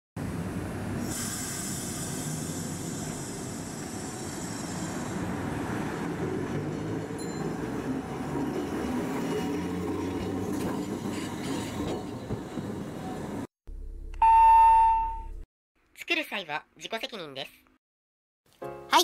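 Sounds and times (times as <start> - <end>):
tram running past: 0.2 - 13.5
high hiss: 1.1 - 5.3.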